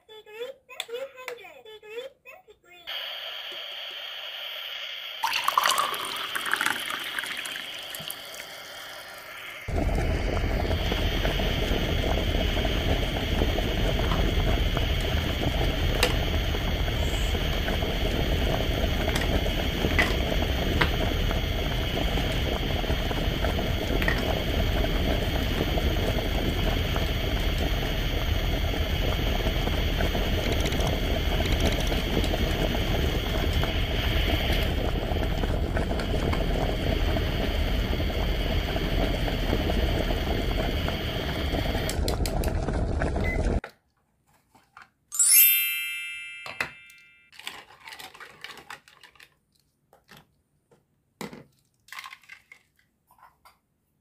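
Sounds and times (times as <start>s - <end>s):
toy pot bubbling: 5.2s - 42.6s, 51.5s - 53.4s.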